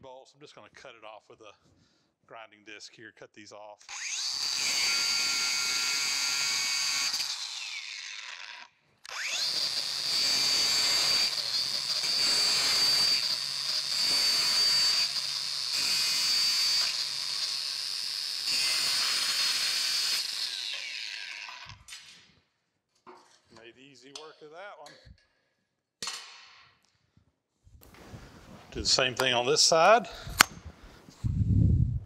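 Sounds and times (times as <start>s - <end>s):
angle grinder cutting steel: 3.9s - 21.9s.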